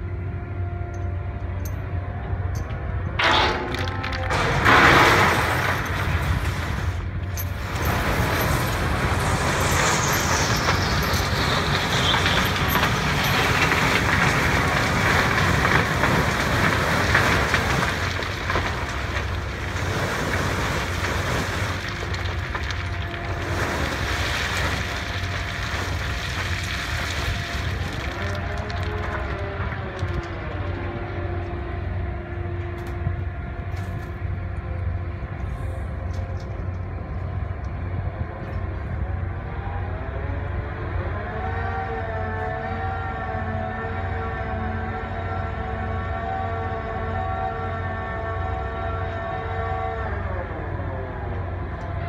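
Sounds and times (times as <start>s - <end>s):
falling whine: 0.0s - 41.1s
low rumble: 0.0s - 41.1s
shifting stone: 7.4s - 29.4s.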